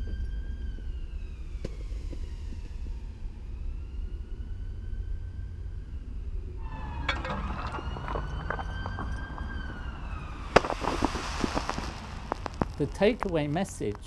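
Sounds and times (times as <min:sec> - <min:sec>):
foam crackling: 0:06.6 - 0:14.0
sharp crack and hiss: 0:10.4 - 0:14.0.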